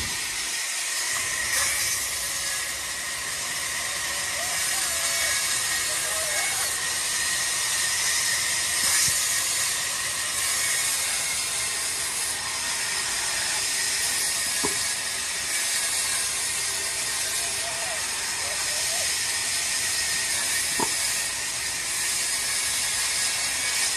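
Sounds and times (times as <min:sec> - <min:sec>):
band saw cutting log: 0:00.0 - 0:23.9.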